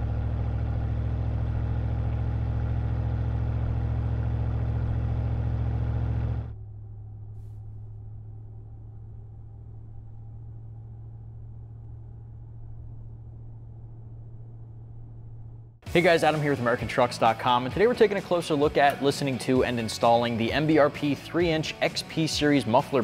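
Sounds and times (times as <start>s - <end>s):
deep engine idle hum: 0.0s - 16.0s
loud exhaust rumble: 0.0s - 16.0s.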